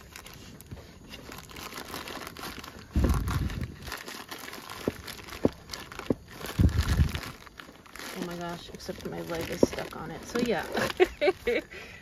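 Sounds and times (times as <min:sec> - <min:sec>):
plastic packaging crinkling: 0:00.0 - 0:11.7
low bumping rumble: 0:02.9 - 0:03.9, 0:04.7 - 0:08.1.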